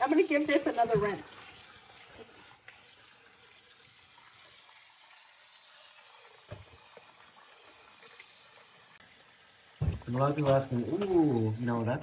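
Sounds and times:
faucet water splashing in bowl: 0:00.0 - 0:12.0
knock: 0:06.5 - 0:06.7, 0:09.8 - 0:10.1.

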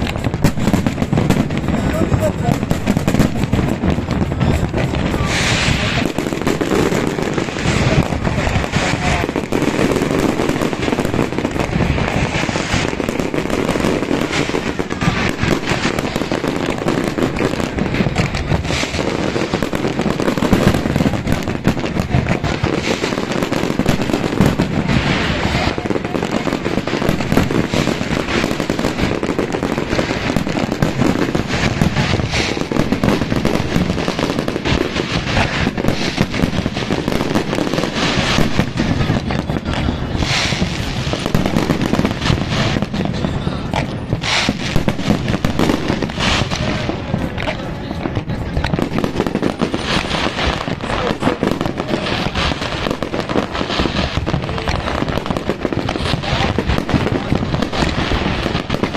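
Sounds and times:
fireworks bangs and crackle: 0:00.0 - 0:58.9.

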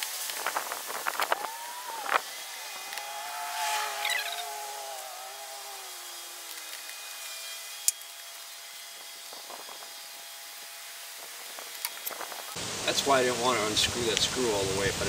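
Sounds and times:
faint steady hiss: 0:11.0 - 0:15.0.

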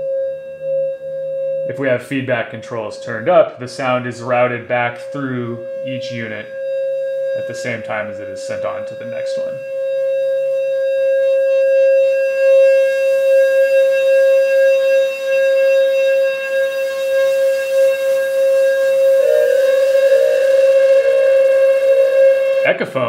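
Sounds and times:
steady synthesizer tone: 0:01.8 - 0:22.8.

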